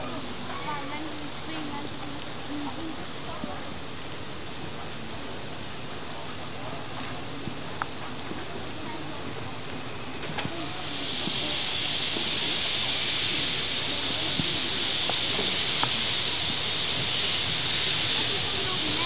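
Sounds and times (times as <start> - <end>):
low steady rush: 0.0 - 19.0
steam hissing: 9.8 - 19.0.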